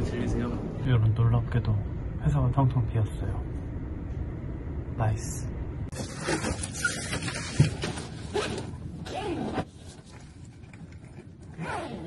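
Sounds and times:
zipper pulls: 8.2 - 10.3, 10.9 - 12.0.

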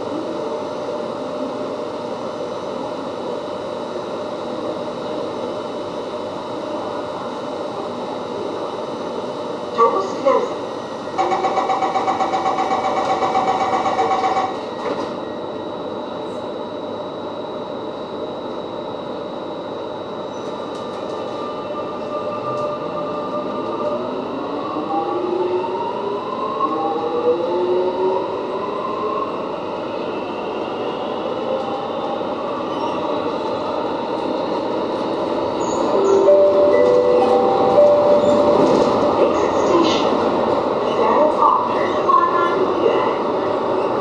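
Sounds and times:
train doors shutting: 11.1 - 15.4, 31.6 - 40.8
rapid door warning beeps: 11.2 - 14.7
train car rumble: 31.8 - 44.0.

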